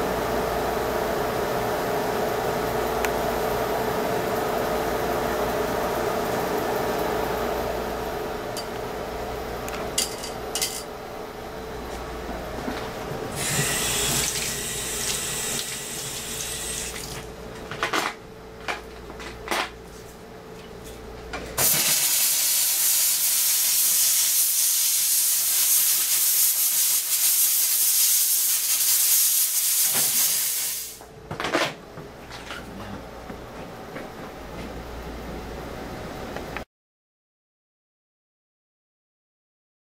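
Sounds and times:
tap water running into sink: 0:13.4 - 0:17.3.

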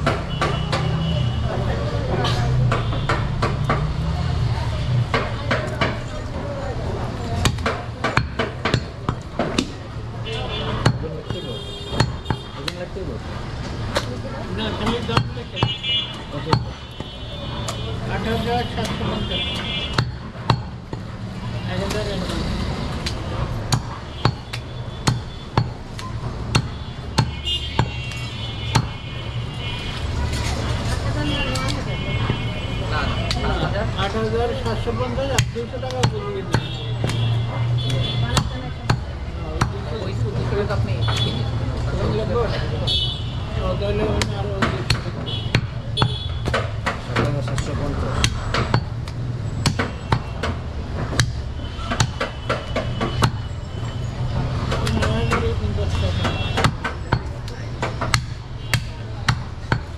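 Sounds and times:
cleaver chopping on wooden block: 0:07.4 - 0:09.8, 0:10.6 - 0:12.9, 0:14.7 - 0:17.1, 0:18.8 - 0:29.1, 0:35.2 - 0:39.9, 0:44.0 - 0:53.6, 0:54.6 - 0:59.9.

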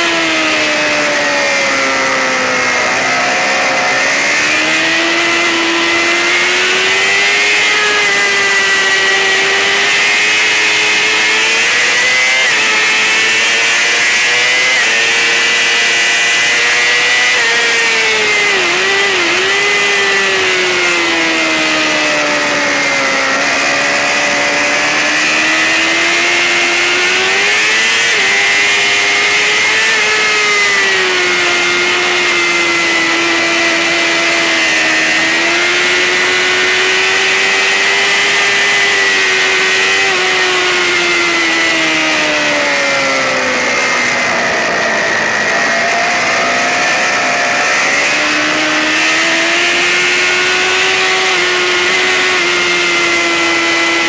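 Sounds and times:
sportbike engine revving high: 0:00.0 - 0:54.0.

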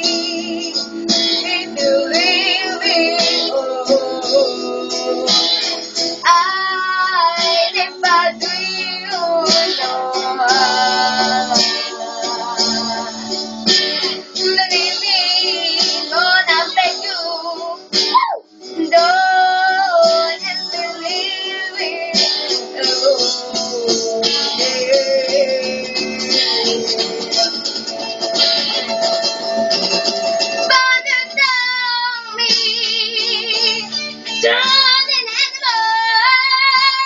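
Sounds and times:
guitar accompaniment: 0:00.0 - 0:37.0
girl singing: 0:01.4 - 0:05.4, 0:06.2 - 0:13.2, 0:14.4 - 0:26.3, 0:30.6 - 0:37.0.

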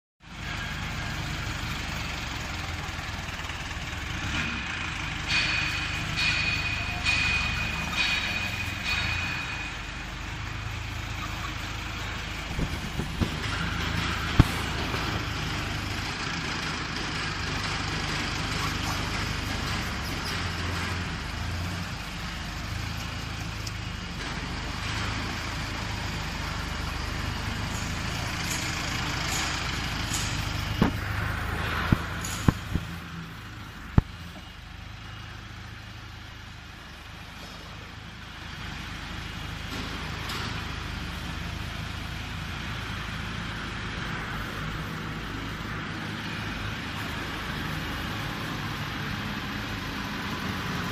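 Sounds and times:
diesel engine running: 0:00.2 - 0:50.9
sharp metallic knocks: 0:04.2 - 0:15.4, 0:27.5 - 0:34.5.

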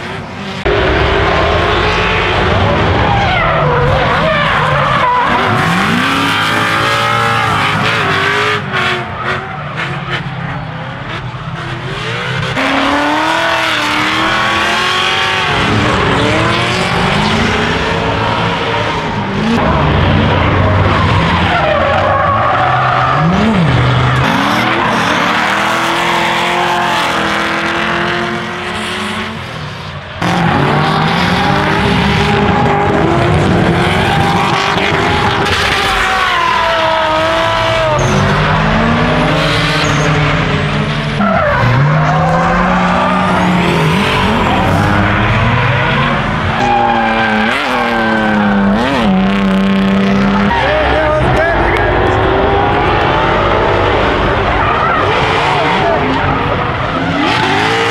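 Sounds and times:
car engines revving: 0:00.0 - 0:57.9
tyre squeal and skidding: 0:02.9 - 0:10.6, 0:20.3 - 0:27.1, 0:33.8 - 0:40.4, 0:41.2 - 0:49.2.

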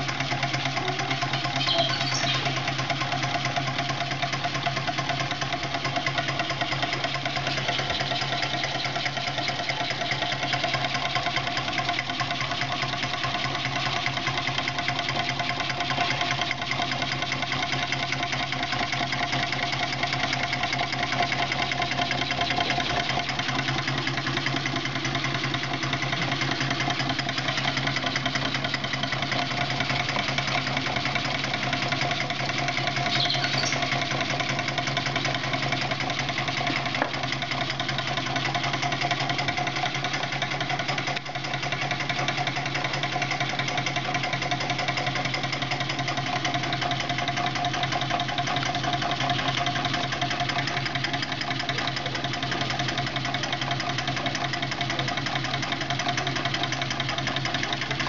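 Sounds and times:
engine mechanical rattle: 0:00.0 - 0:58.0.

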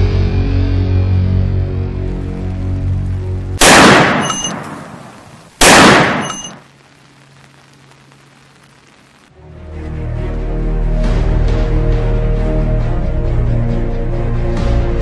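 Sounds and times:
soundtrack music: 0:00.0 - 0:04.5, 0:09.4 - 0:15.0
low hum: 0:00.0 - 0:08.1
pistol shots echoing: 0:03.6 - 0:06.6.

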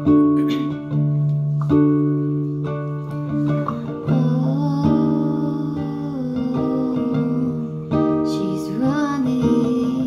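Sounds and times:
guitar chords: 0:00.0 - 0:10.0
woman singing into a microphone: 0:03.5 - 0:10.0.

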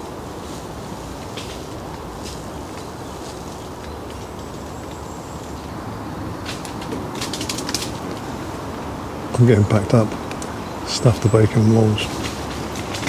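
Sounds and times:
wind through trees: 0:00.0 - 0:13.0
faint ticks and snaps: 0:01.1 - 0:05.8, 0:06.4 - 0:08.3, 0:10.1 - 0:10.6.

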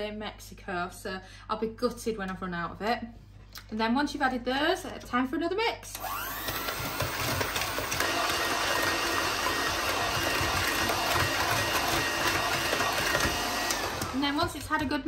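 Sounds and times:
electric hand mixer running: 0:05.9 - 0:15.0.

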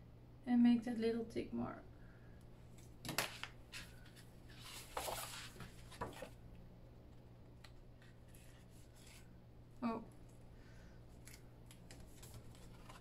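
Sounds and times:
paper rustling: 0:03.1 - 0:06.4, 0:11.2 - 0:13.0.

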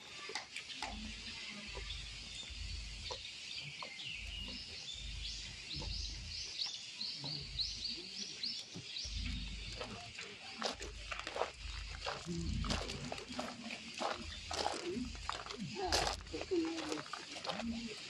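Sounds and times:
low rumble: 0:10.8 - 0:16.6.

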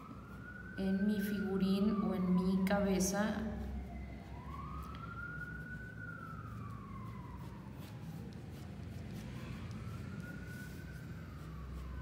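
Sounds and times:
siren wailing: 0:00.0 - 0:12.0
pencil scratching on paper: 0:05.5 - 0:12.0.

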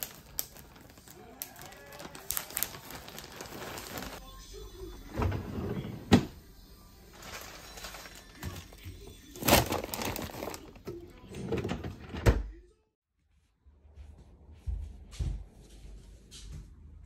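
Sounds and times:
plastic bag rustling: 0:00.0 - 0:04.2, 0:07.1 - 0:11.7.

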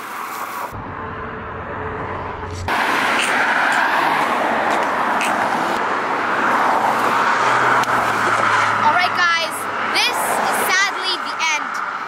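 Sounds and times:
road traffic rushing: 0:00.0 - 0:12.0
low hum: 0:00.7 - 0:03.2.

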